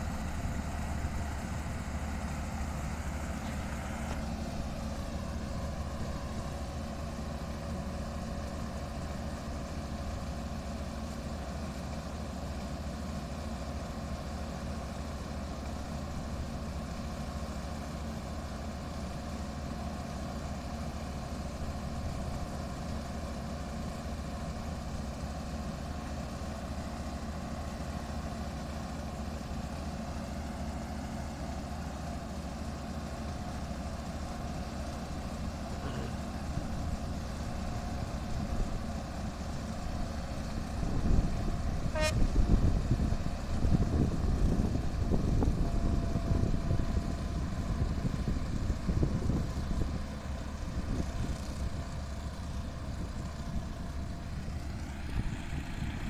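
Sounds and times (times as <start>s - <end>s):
diesel engine drone: 0.0s - 56.0s.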